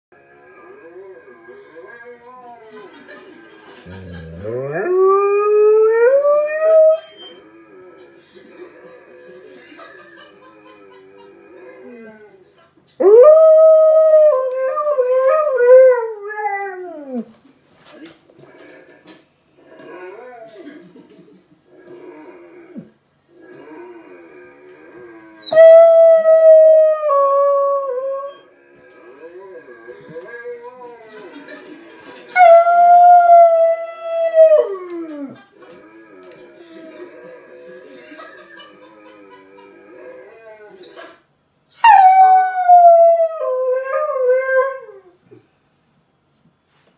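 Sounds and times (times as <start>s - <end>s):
dog howling: 3.9s - 7.9s, 13.0s - 17.3s, 23.5s - 28.5s, 32.3s - 35.4s, 41.8s - 45.1s
faint wavering vocal sounds: 21.7s - 25.4s.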